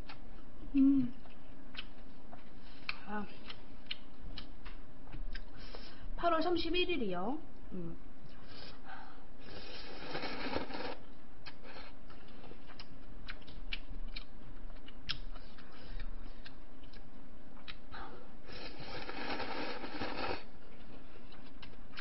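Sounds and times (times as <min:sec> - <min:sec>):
chewing: 0:00.0 - 0:05.6, 0:09.5 - 0:17.8, 0:18.5 - 0:22.0
noodles slurping: 0:09.4 - 0:11.0, 0:18.5 - 0:20.5.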